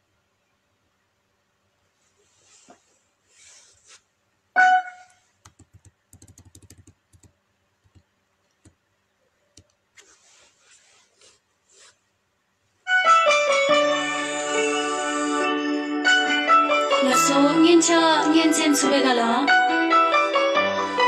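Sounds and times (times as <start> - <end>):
faint rustling: 1.9 - 4.2, 9.9 - 12.2.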